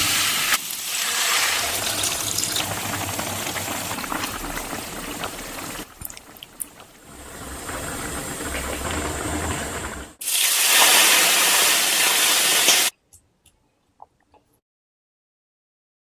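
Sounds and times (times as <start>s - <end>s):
hot oil sizzling: 0.0s - 12.9s
broth simmering and bubbling: 1.5s - 10.3s.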